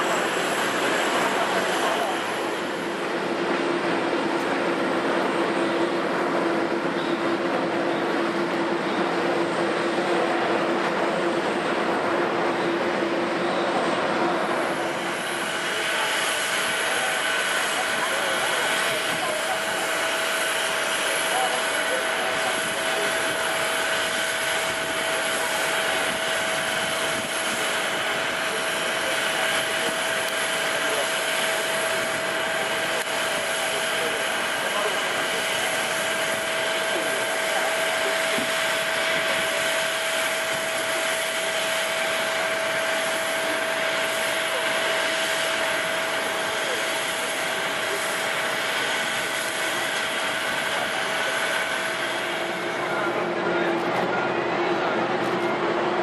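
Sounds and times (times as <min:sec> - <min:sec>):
jet turbines whining: 0:00.0 - 0:56.0.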